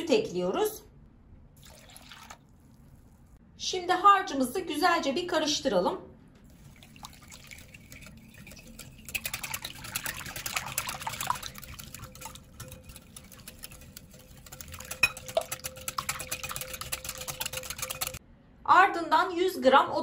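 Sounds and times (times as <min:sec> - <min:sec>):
whisk beating liquid in glass bowl: 0:06.5 - 0:18.2.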